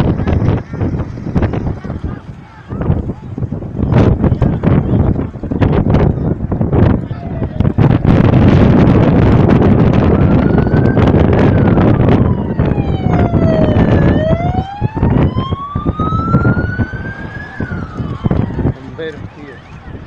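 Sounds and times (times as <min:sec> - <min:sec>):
loud low rumble with crackles: 0:00.0 - 0:20.0
emergency vehicle siren wailing: 0:08.9 - 0:20.0.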